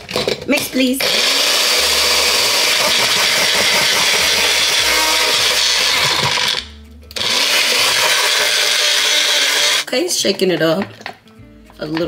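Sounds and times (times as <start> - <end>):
blender motor running: 1.0 - 9.9.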